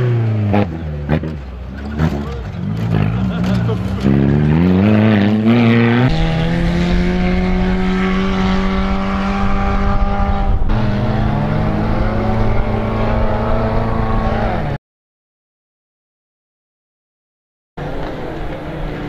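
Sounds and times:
buggy engine revving: 0.0s - 14.8s.

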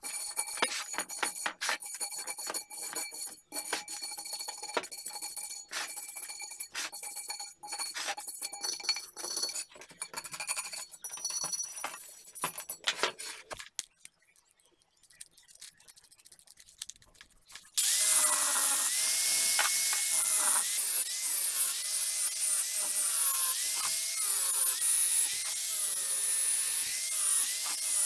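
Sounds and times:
angle grinder grinding steel: 0.0s - 11.1s, 17.8s - 28.0s
scraping rust off steel rim: 0.1s - 11.2s.

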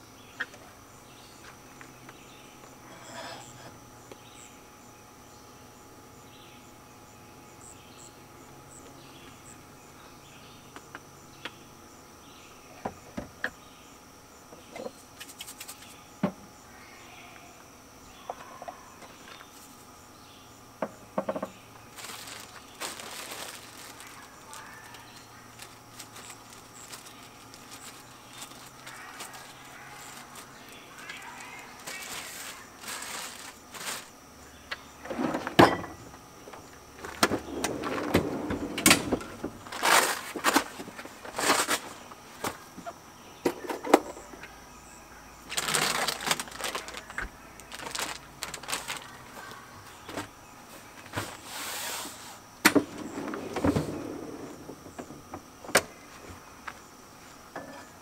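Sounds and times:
insects chirping: 0.0s - 58.0s
rustling and clattering objects: 20.8s - 34.3s, 35.0s - 44.3s, 45.5s - 58.0s.

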